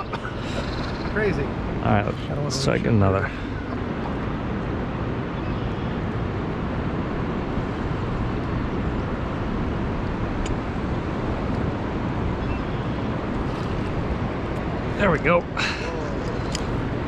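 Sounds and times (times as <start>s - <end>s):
rushing river current: 0.0s - 17.0s.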